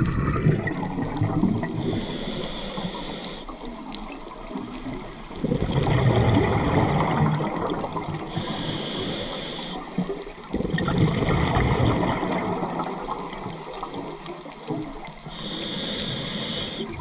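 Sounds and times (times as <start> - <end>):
exhaled bubbles rushing: 0.0 - 2.0, 5.3 - 8.4, 10.0 - 14.1
regulator inhale hiss: 1.7 - 3.7, 8.3 - 10.2, 15.2 - 17.0.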